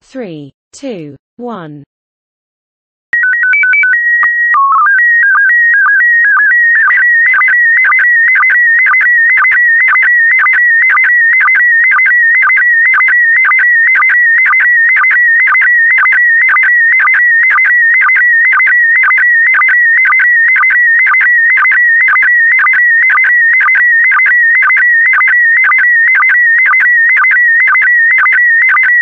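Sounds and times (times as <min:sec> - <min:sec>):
code tones: 0:03.1 - 0:29.0
fast-warbling electronic tone: 0:03.2 - 0:29.0.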